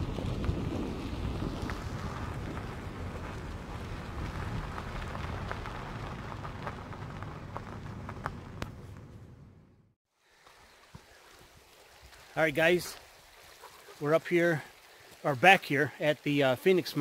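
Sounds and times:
vehicle rolling on dirt road: 0:00.0 - 0:11.6.

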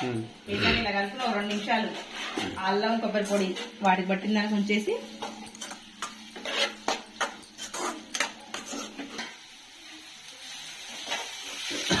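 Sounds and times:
spatula scraping metal pot: 0:00.5 - 0:03.8, 0:05.6 - 0:09.4.

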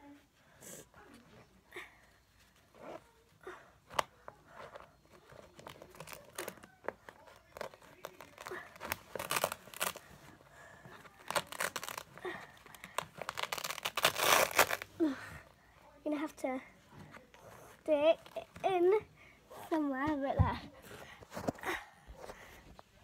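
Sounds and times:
papery or plastic crinkling: 0:04.5 - 0:10.2, 0:11.0 - 0:14.9.

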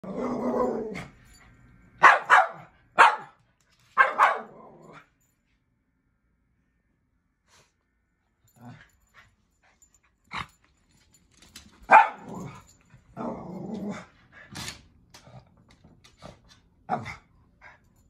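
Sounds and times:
dog barking: 0:02.0 - 0:03.4, 0:04.0 - 0:04.6, 0:11.9 - 0:12.3.

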